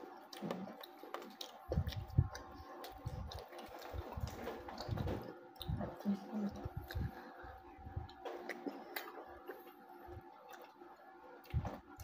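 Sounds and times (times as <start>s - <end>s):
faint steady hum: 0.0s - 12.0s
person chewing: 0.0s - 12.0s.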